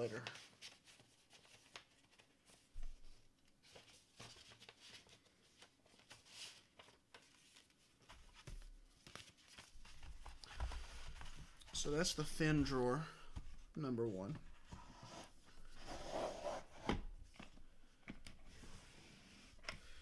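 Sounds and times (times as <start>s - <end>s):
paper rustling and sliding: 0.1s - 13.6s.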